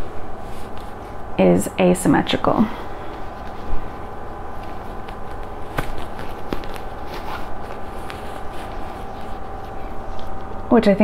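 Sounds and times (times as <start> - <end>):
cloth rustling: 0.0 - 1.4, 2.8 - 10.7
steady background hum: 0.0 - 11.0.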